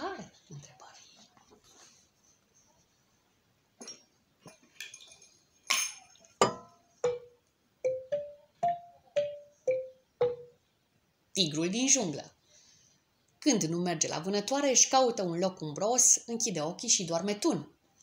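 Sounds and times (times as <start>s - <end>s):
xylophone notes: 7.0s - 10.6s
sharp percussion strikes: 7.9s - 10.5s.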